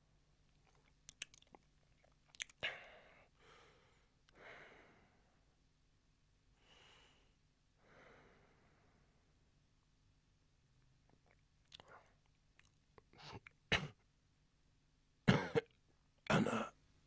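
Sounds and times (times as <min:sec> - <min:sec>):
man breathing heavily in sleep: 0:02.6 - 0:05.4, 0:06.6 - 0:09.2.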